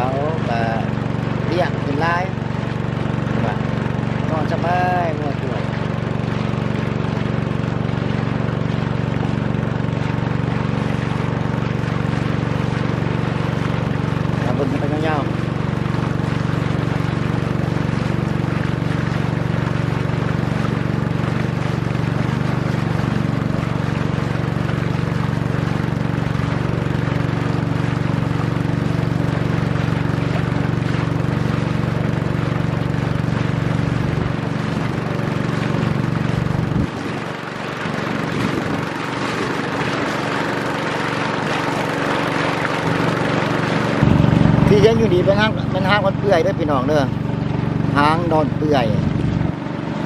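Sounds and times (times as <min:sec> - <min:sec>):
boat engine droning: 0:00.0 - 0:50.0.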